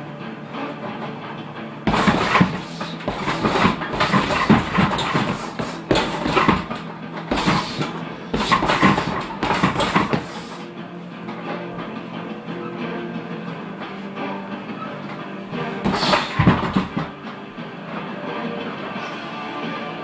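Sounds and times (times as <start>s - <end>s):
gloved punches on heavy bag: 1.9s - 10.6s, 15.8s - 17.2s.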